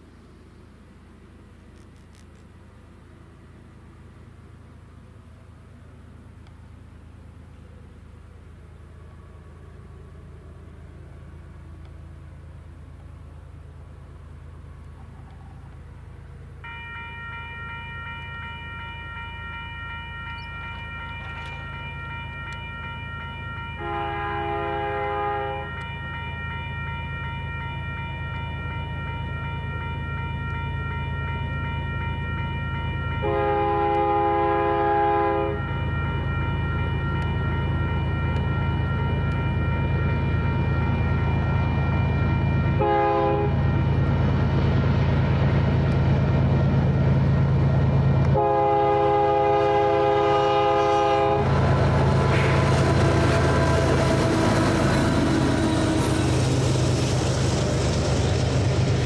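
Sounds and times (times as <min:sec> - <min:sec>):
diesel locomotive engine rumble: 0:00.0 - 0:59.0
train air horn blasts: 0:16.6 - 0:44.4, 0:48.2 - 0:57.1.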